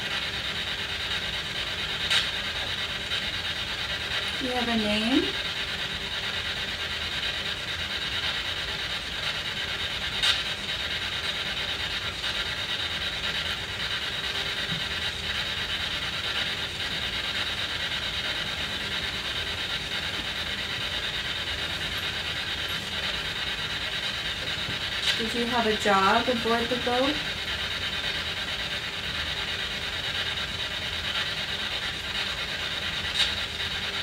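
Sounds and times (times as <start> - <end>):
radio static hiss: 10.0 - 28.3.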